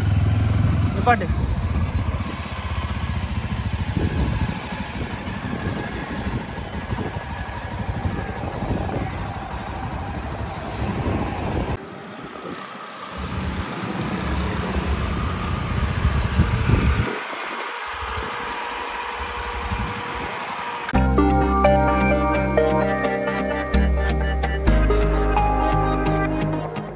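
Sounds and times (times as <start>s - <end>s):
motorcycle engine running: 0.0s - 10.6s, 13.2s - 22.8s.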